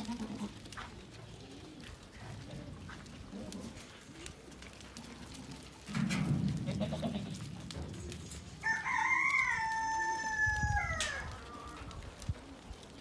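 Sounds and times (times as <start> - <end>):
rooster crowing: 8.6 - 11.8.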